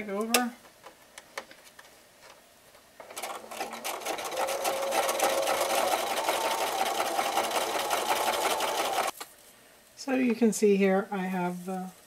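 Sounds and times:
sewing machine running: 3.0s - 9.2s.

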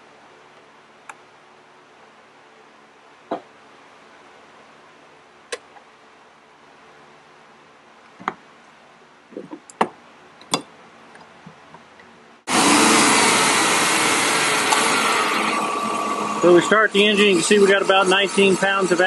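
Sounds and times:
car engine starting and running: 12.5s - 17.7s.

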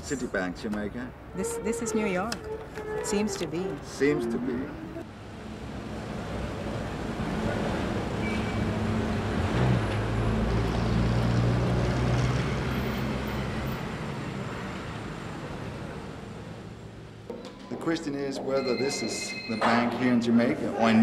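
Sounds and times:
vehicle engine passing: 4.2s - 16.5s.

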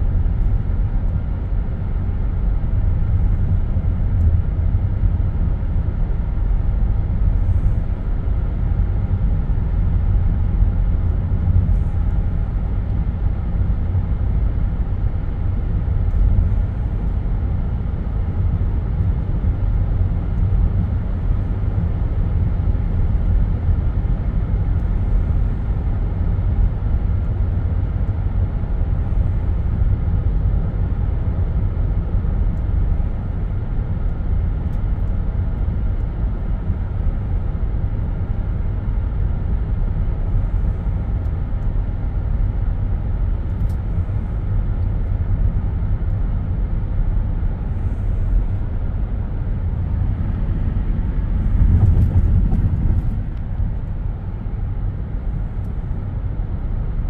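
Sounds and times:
car cabin road rumble: 0.0s - 57.0s.

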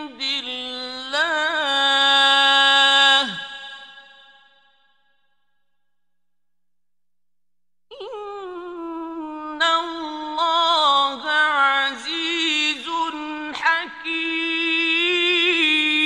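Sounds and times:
man chanting melodically: 0.0s - 4.3s, 9.6s - 16.0s.

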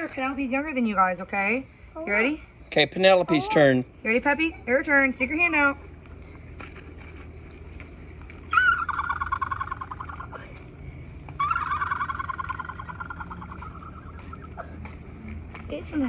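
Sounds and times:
high wavering vocal calls: 8.4s - 15.2s.

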